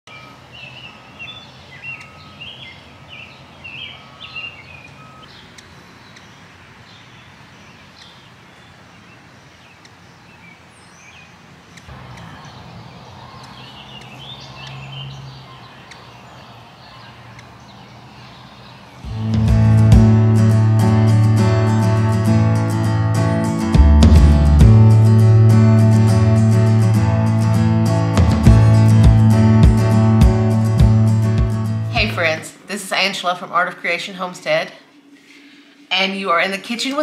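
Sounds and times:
small birds chirping: 0:00.1 - 0:19.4
low hum: 0:19.1 - 0:32.4
steady background hiss: 0:32.0 - 0:37.0.

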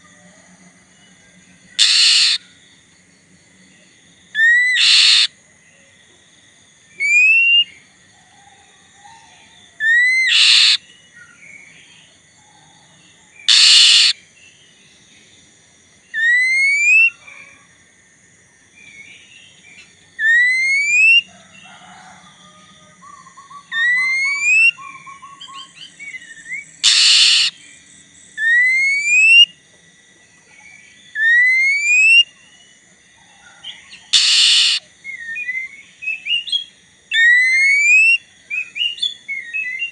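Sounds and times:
magpie-robin singing: 0:01.8 - 0:02.4, 0:04.4 - 0:05.3, 0:09.8 - 0:11.4, 0:13.4 - 0:14.2, 0:23.6 - 0:27.6, 0:34.1 - 0:39.9
short harsh bird notes: 0:01.8 - 0:02.4, 0:04.7 - 0:05.3, 0:10.2 - 0:10.8, 0:13.5 - 0:14.2, 0:26.8 - 0:27.6, 0:34.2 - 0:34.8
loud rising whistle: 0:34.2 - 0:34.8.

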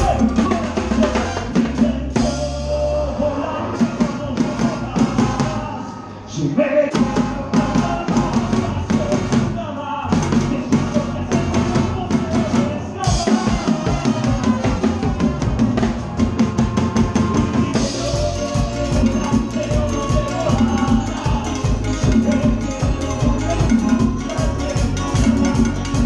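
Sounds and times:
drum kit and percussion: 0:00.0 - 0:05.8, 0:06.9 - 0:26.0
live band playing dance music: 0:00.0 - 0:26.0.

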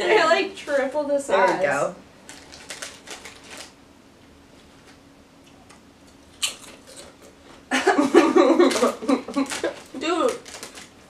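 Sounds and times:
crisps crunching: 0:02.2 - 0:03.8, 0:06.2 - 0:07.3, 0:08.5 - 0:11.0.

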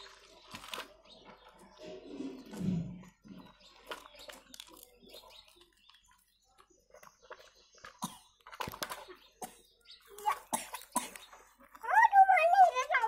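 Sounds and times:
plastic toys knocking and scraping: 0:00.0 - 0:13.0.

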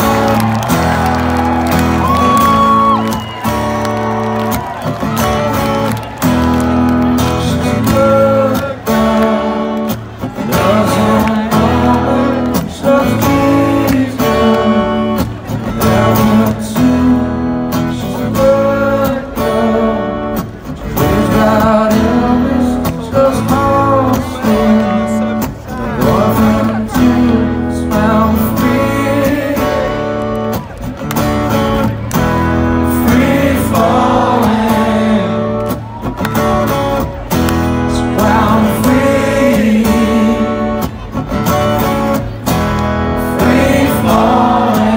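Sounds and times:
acoustic guitar strumming: 0:00.0 - 0:44.9
man singing: 0:07.3 - 0:30.2, 0:32.8 - 0:35.7, 0:37.8 - 0:41.2, 0:43.2 - 0:44.9.

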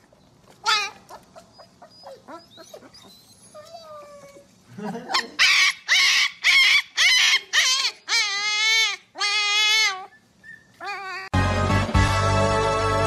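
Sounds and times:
puppy yelping and howling: 0:00.6 - 0:04.5, 0:05.2 - 0:11.4.

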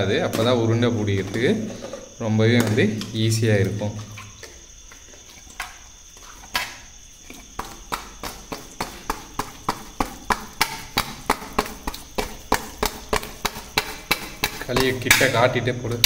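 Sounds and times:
dough knocking against metal plate: 0:07.5 - 0:15.4.

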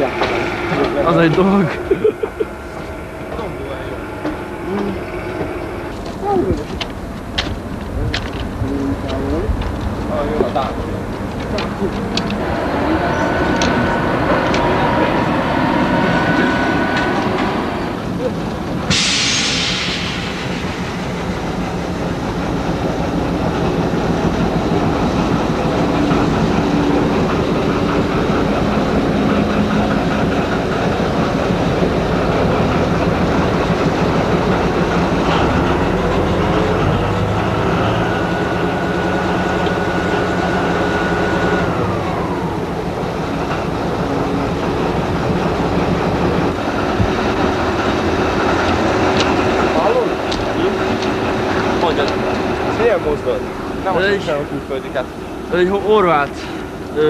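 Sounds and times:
diesel locomotive engine drone: 0:00.0 - 0:57.0
high whine: 0:00.0 - 0:57.0
rail noise: 0:00.0 - 0:57.0.

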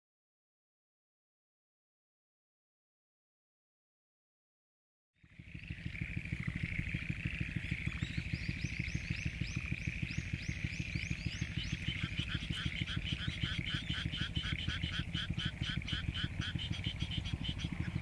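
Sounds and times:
high rapidly repeated frog calls: 0:05.2 - 0:18.0
chorus of frogs calling: 0:05.3 - 0:18.0.

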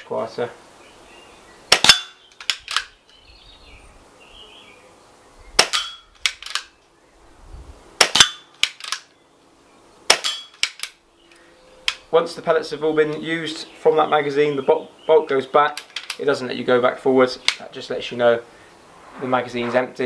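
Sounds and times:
air rifle shots: 0:01.7 - 0:02.9, 0:05.6 - 0:06.7, 0:08.0 - 0:09.0, 0:10.1 - 0:10.9
faint rifle clicks: 0:01.7 - 0:03.2, 0:05.6 - 0:06.8, 0:08.0 - 0:09.2, 0:10.1 - 0:12.1, 0:15.7 - 0:16.3, 0:17.4 - 0:17.7.

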